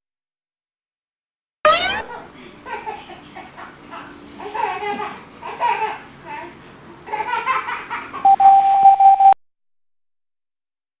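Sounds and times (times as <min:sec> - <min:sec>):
high-pitched tone: 0:01.7 - 0:02.1, 0:08.2 - 0:09.4
baby babbling and laughing: 0:01.7 - 0:08.2.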